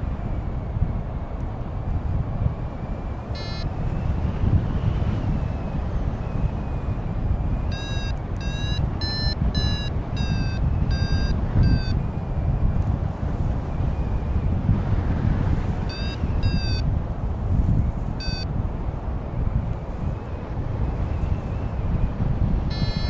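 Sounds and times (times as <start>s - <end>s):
wind buffeting microphone: 0.0s - 23.0s
electronic beeps: 3.4s - 3.7s, 7.7s - 12.0s, 15.9s - 16.8s, 18.2s - 18.5s, 22.7s - 23.0s.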